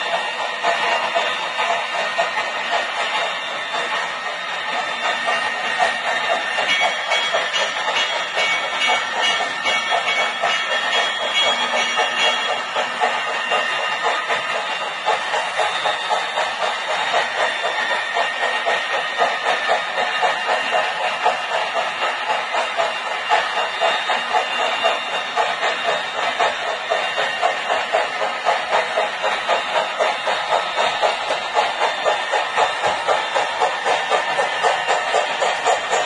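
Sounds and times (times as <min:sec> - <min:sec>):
model train wheels clicking: 0:00.0 - 0:36.0.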